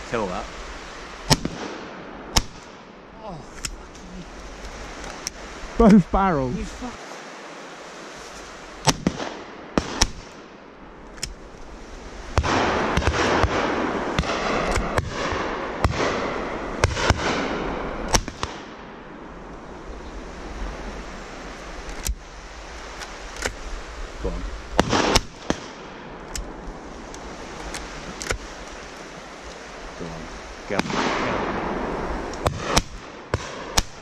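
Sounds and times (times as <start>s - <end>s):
rushing hiss: 0.0s - 34.0s
shotgun shots: 1.3s - 2.8s, 8.8s - 10.5s, 12.4s - 18.7s, 24.8s - 26.0s, 30.8s - 31.7s, 32.4s - 34.0s.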